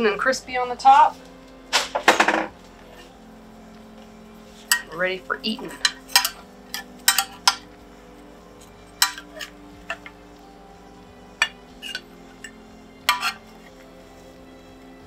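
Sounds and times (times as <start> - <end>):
quiet background music: 0.0 - 15.0
spoon clinking on glass dish: 5.7 - 7.6, 9.0 - 10.0, 13.1 - 13.4.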